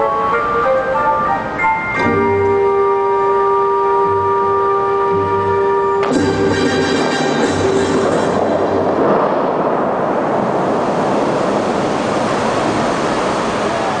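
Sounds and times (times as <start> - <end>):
music: 0.0 - 9.0
fountain water rushing: 6.8 - 14.0.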